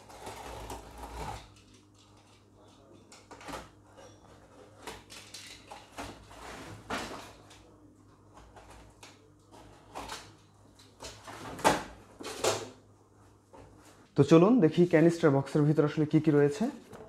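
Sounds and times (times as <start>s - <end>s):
cardboard scraping and rustling: 0.0s - 1.6s.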